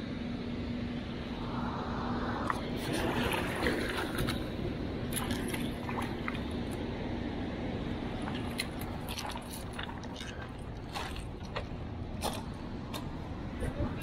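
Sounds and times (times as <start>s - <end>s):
faint low hum: 0.0s - 14.0s
steady rushing noise: 1.1s - 9.1s
water splashing: 2.5s - 6.8s, 7.9s - 12.5s.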